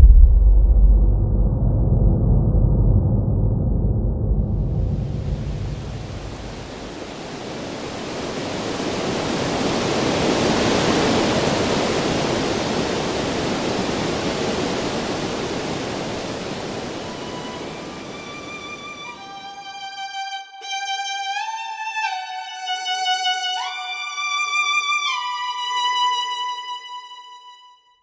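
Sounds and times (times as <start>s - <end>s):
water rushing along boat hull: 4.9s - 19.3s.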